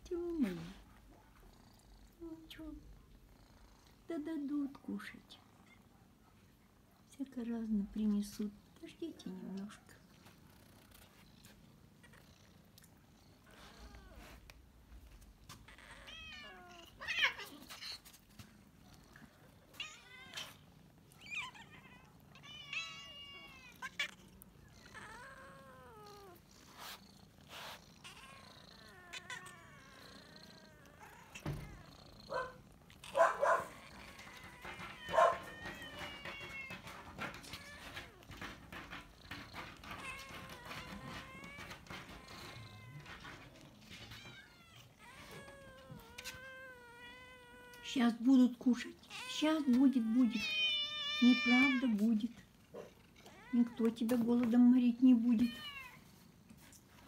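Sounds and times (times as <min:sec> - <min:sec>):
cats meowing: 0:13.4 - 0:14.6, 0:15.4 - 0:18.2, 0:18.8 - 0:48.2, 0:48.8 - 0:54.2, 0:55.2 - 0:56.1.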